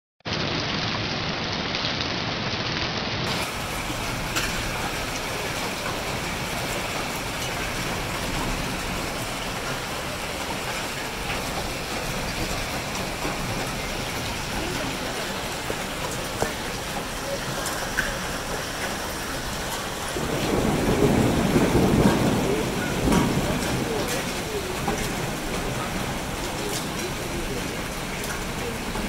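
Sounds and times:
heavy rain and hail falling: 0.3 - 29.0
hailstones ticking: 3.2 - 29.0.

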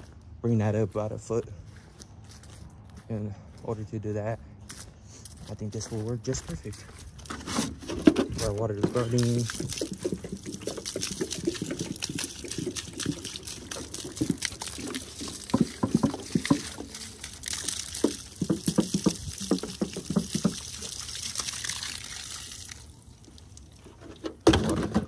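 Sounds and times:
water pouring onto soil: 5.9 - 24.0.

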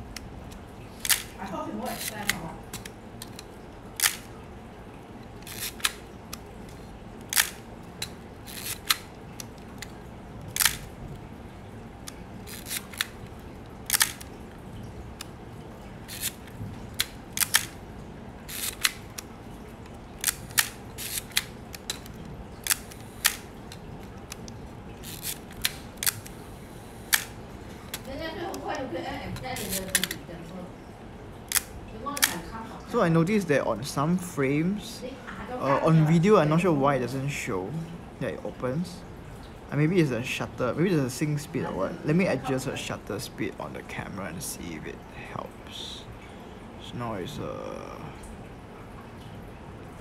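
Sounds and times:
camera shutter clicking: 13.9 - 14.3, 16.1 - 16.4, 18.5 - 19.0, 29.6 - 30.2.

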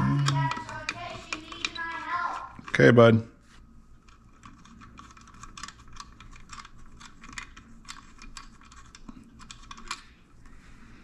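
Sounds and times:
small clicks and ticks: 4.0 - 10.1.

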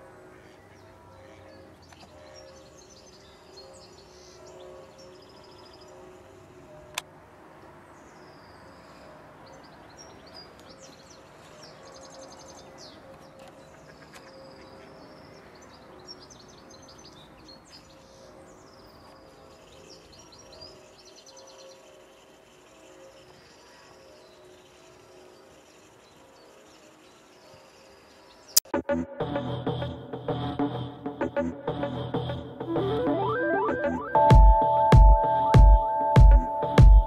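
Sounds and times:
songbirds singing and calling: 0.0 - 28.7.

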